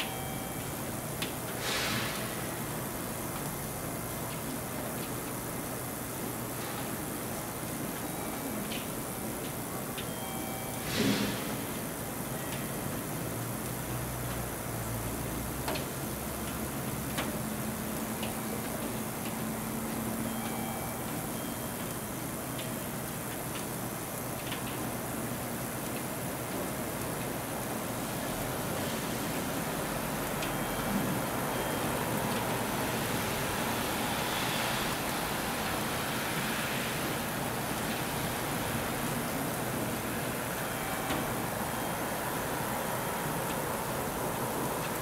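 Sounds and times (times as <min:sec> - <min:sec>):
background hiss: 0:00.0 - 0:09.4
faint high steady tones: 0:20.1 - 0:23.0, 0:30.4 - 0:45.0.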